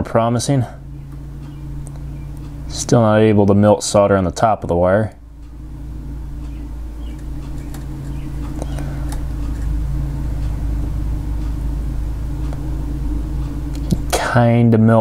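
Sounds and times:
low hum: 0:00.0 - 0:15.0
low mechanical rumble: 0:00.0 - 0:15.0
faint ticks: 0:06.4 - 0:09.7.

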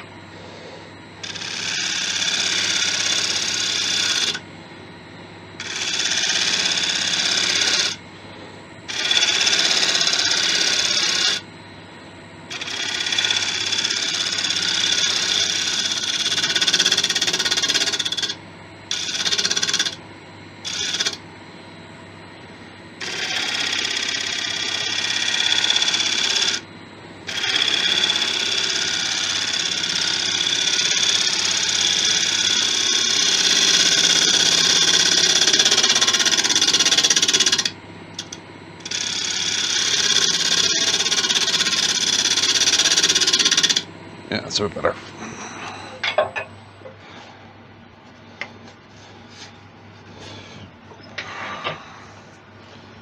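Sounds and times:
lathe motor hum: 0:00.0 - 0:44.3
lathe tool hissing cut: 0:01.2 - 0:04.4, 0:05.6 - 0:08.0, 0:08.9 - 0:11.4, 0:12.5 - 0:20.0, 0:27.3 - 0:43.9.

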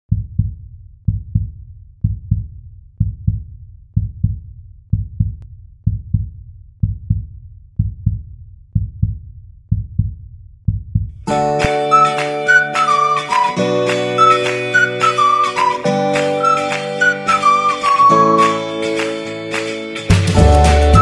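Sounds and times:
heartbeat thumps: 0:00.1 - 0:11.2.

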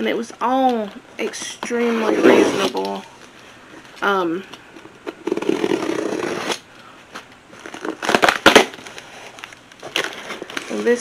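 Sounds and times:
packaging crinkling: 0:05.2 - 0:11.0.

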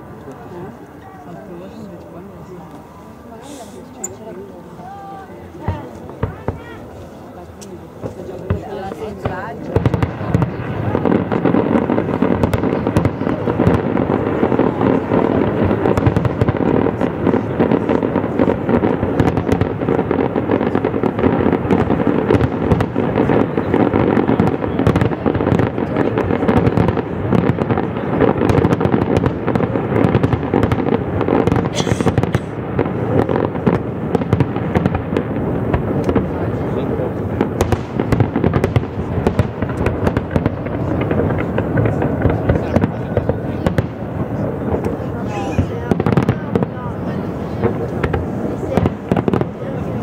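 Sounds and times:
crackling fireworks: 0:00.0 - 0:50.0
fireworks bursting: 0:01.5 - 0:50.0.

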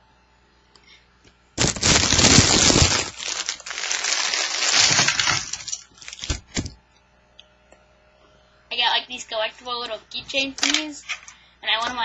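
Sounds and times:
crinkling and rustling handling noise: 0:01.6 - 0:06.8.

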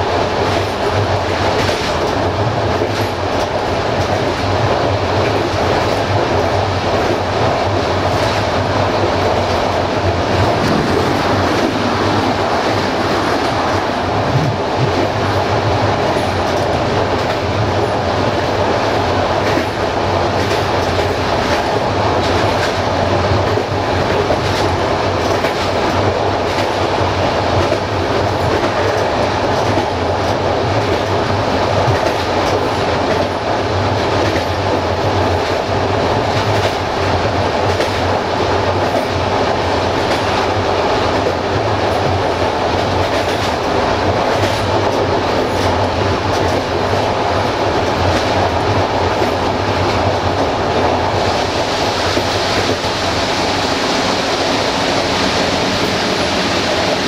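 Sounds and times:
train rolling rumble: 0:00.0 - 0:57.0
wheels clicking over rail joints: 0:41.1 - 0:47.1.

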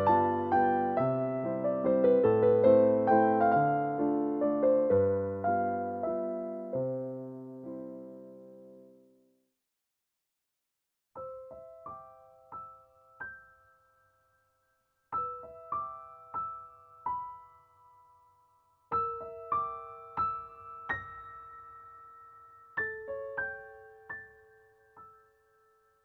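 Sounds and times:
slow sparse piano music: 0:00.0 - 0:09.2, 0:11.2 - 0:26.0.

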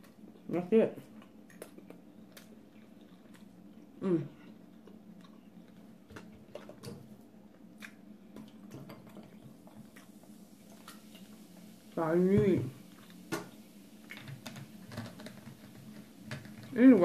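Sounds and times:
chewing food: 0:00.0 - 0:11.4.

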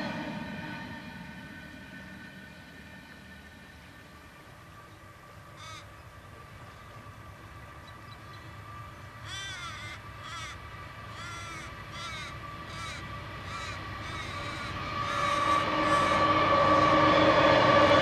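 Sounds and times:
train rumble and hum: 0:00.0 - 0:18.0
crow cawing: 0:05.6 - 0:05.9, 0:09.2 - 0:16.2.

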